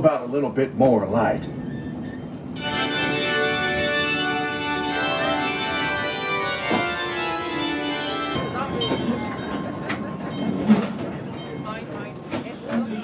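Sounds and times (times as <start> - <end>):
organ chords: 2.6 - 8.9.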